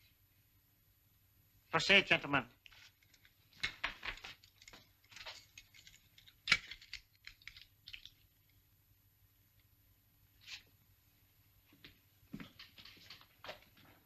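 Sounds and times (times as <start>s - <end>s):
apparatus clicks and rustles: 2.6s - 8.6s.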